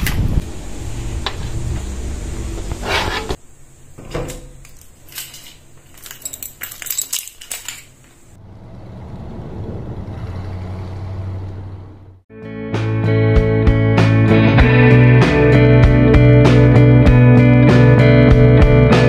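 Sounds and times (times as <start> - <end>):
car keys jangling: 4.5 - 8.3.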